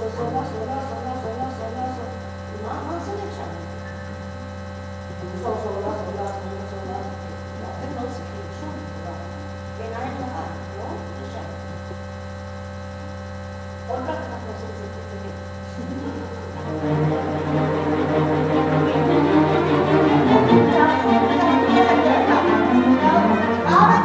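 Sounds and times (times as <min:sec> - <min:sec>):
electrical mains hum: 0:00.0 - 0:24.0.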